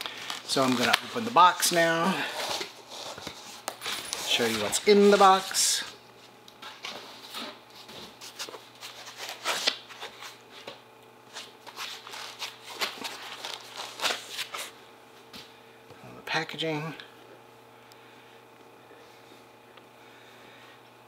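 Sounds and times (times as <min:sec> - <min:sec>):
cardboard and paper rustling: 0:11.3 - 0:14.7.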